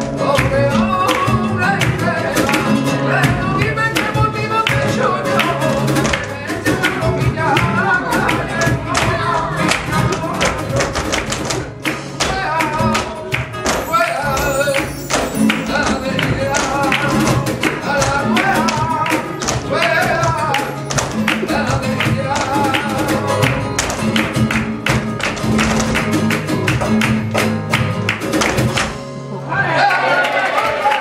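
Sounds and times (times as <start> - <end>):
flamenco guitar: 0.0 - 31.0
hand percussion strikes: 0.4 - 29.0.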